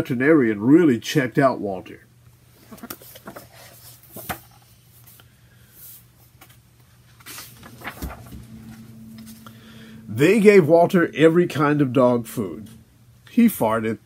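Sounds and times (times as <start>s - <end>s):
paper rustling: 6.4s - 9.1s
faint hum: 7.3s - 14.0s.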